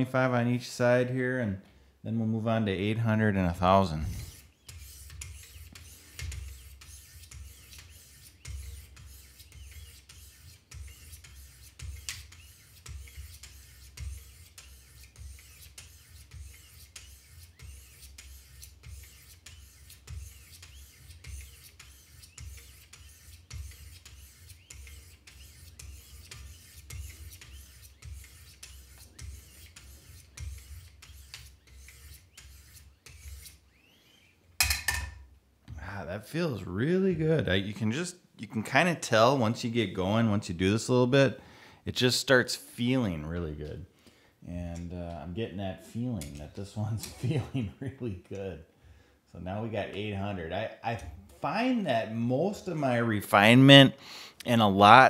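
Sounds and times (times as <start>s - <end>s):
sharpening stones rasping on blade: 4.2s - 33.6s.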